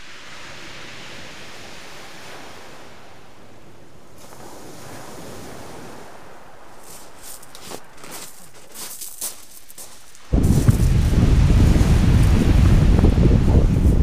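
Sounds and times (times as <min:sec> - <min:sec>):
surf washing over shingle beach: 0:00.0 - 0:14.0.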